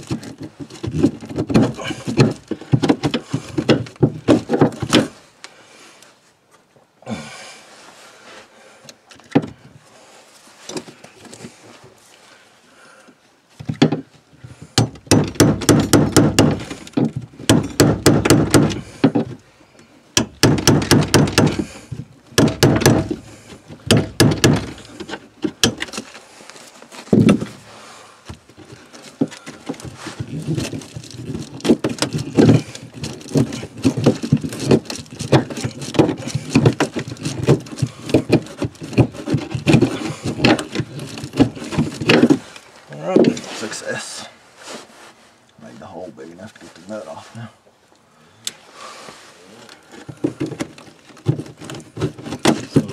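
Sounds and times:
hand tools knocking: 22.4 - 23.2.

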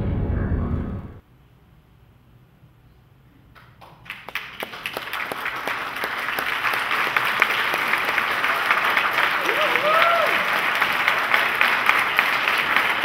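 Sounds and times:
audience applause: 3.8 - 13.0.

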